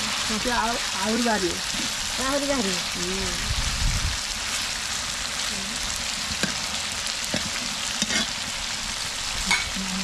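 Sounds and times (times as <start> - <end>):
spatula stirring in a pan: 0.0 - 3.1, 6.0 - 9.7
curry sizzling in a pan: 0.0 - 10.0.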